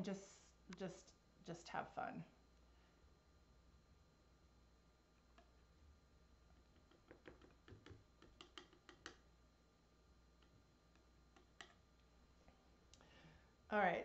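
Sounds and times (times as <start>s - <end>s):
palette knife clicks and taps: 6.9s - 9.2s.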